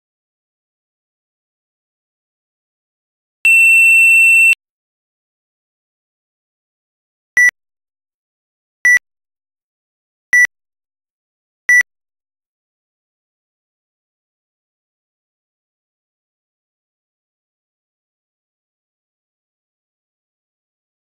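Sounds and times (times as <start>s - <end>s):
long electronic beep: 3.5s - 4.6s
short lower beeps: 3.5s - 4.6s.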